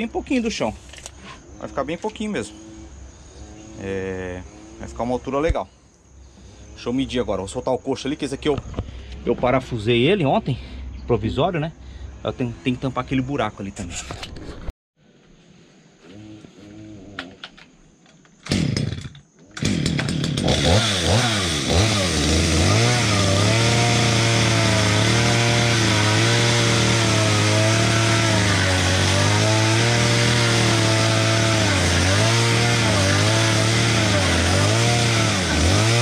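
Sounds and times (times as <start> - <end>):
power tool motor running: 18.5 - 36.0.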